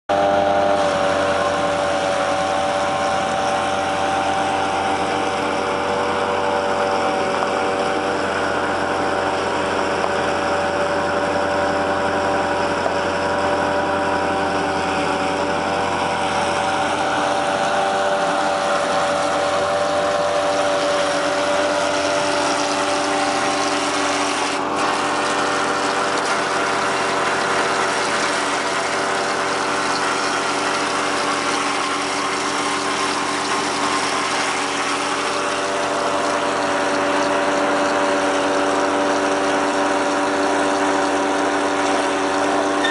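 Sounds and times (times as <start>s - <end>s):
constant whining hum: 0.1s - 42.9s
engine idling: 0.1s - 42.9s.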